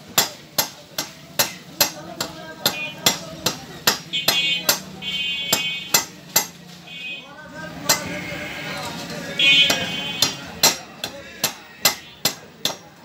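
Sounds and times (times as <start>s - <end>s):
wooden mallet chopping fish: 0.1s - 4.9s, 5.5s - 6.6s, 9.6s - 12.9s.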